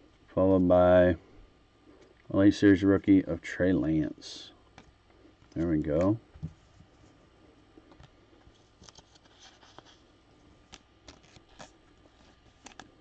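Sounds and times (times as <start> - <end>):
cards and wrappers rustling: 7.9 - 13.0.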